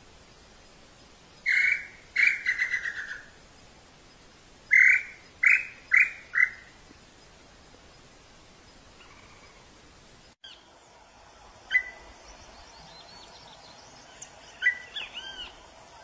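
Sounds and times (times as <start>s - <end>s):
bird whistling calls: 1.4s - 3.3s, 4.7s - 6.7s, 11.7s - 12.1s, 14.1s - 15.6s.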